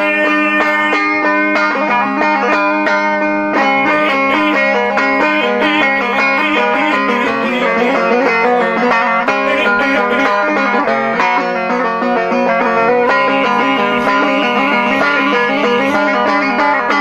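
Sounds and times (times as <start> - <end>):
man singing: 0.0 - 1.3, 3.6 - 11.4, 13.0 - 17.0
lute strummed rhythmically: 0.0 - 17.0.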